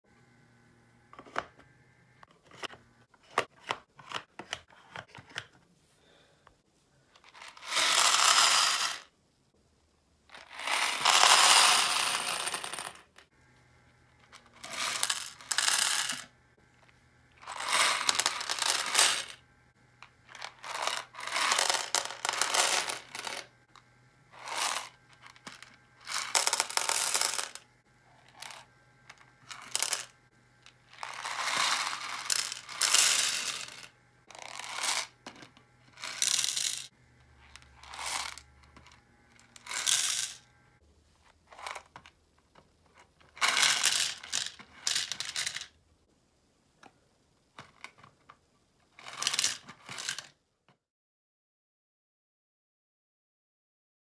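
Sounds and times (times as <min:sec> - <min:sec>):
plastic pins clattering: 0:14.2 - 0:16.3, 0:17.4 - 0:19.4, 0:20.3 - 0:23.5, 0:24.4 - 0:27.6, 0:28.2 - 0:30.1, 0:30.7 - 0:40.4, 0:41.5 - 0:45.7, 0:49.0 - 0:50.4.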